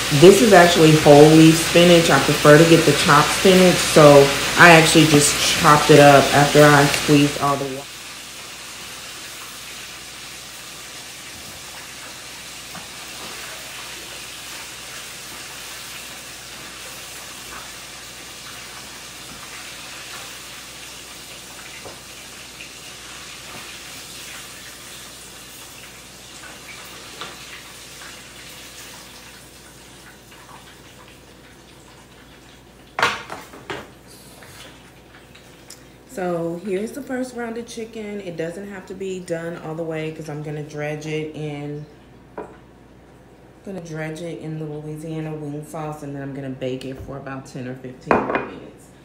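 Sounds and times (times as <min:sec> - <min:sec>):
oil sizzling and crackling: 0:00.0 - 0:37.8.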